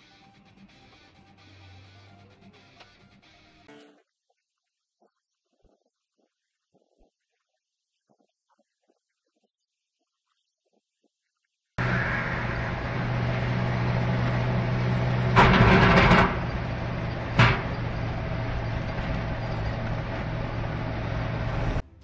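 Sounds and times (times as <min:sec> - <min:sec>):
loud rushing burst: 0:11.8 - 0:21.8
vehicle engine and road noise: 0:11.8 - 0:21.8.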